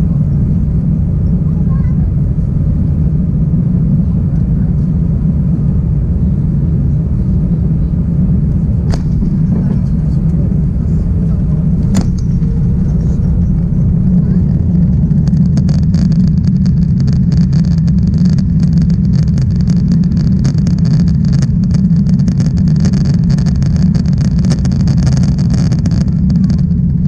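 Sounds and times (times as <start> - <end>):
airplane cabin low rumble: 0.0 - 27.0
fast rattling: 8.9 - 26.8.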